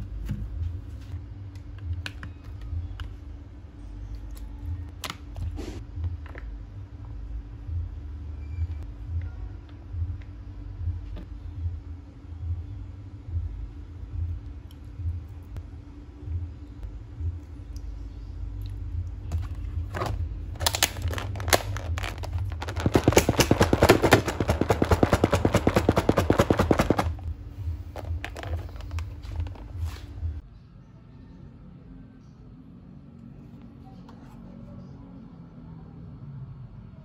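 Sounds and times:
rapid crackling clicks: 20.6s - 27.2s.

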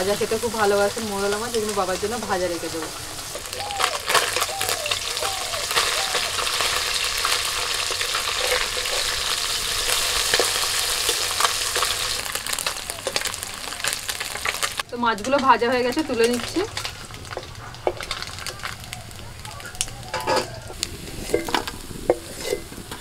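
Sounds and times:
fish sizzling in hot oil: 0.0s - 23.0s
metal spatula scraping pan: 20.2s - 23.0s.

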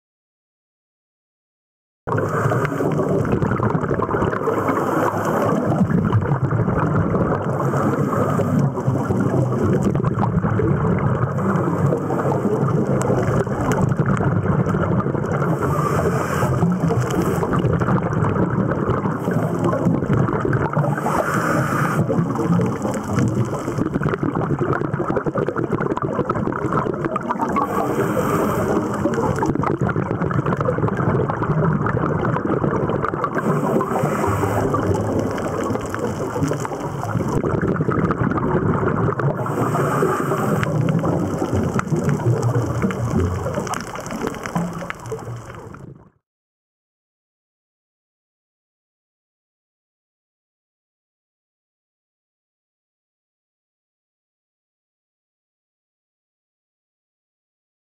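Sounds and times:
muffled underwater rushing: 2.1s - 46.2s
regulator exhale hiss: 15.5s - 17.5s, 20.9s - 22.1s, 27.6s - 29.1s, 33.4s - 35.1s, 39.4s - 40.9s.

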